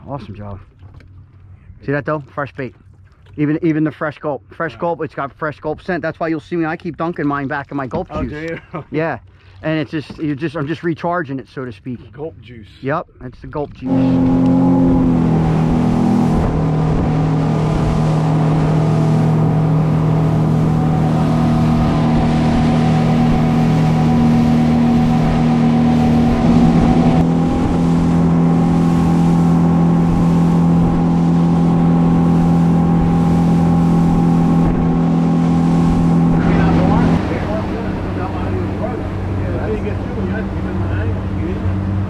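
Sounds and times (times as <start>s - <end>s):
outboard motor droning: 0.0s - 12.2s, 13.6s - 42.0s
rush of wind and water spray: 13.8s - 42.0s.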